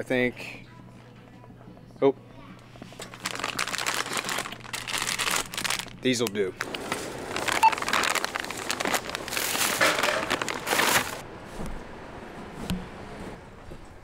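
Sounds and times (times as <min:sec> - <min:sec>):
plastic packaging crinkling: 0:02.9 - 0:11.2.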